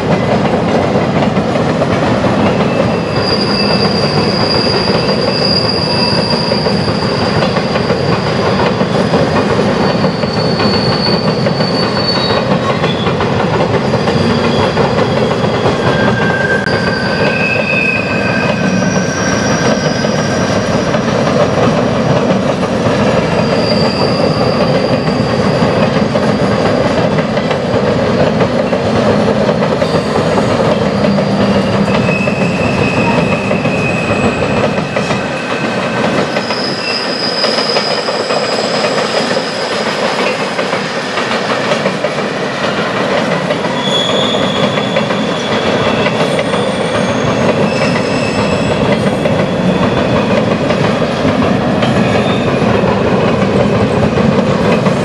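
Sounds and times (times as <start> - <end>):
train wheels rumbling on rails: 0.0 - 55.0
high-pitched wheel squeals: 2.7 - 9.3, 9.9 - 13.1, 13.8 - 21.0, 23.2 - 26.8, 30.8 - 39.9, 43.7 - 50.4, 52.0 - 52.7.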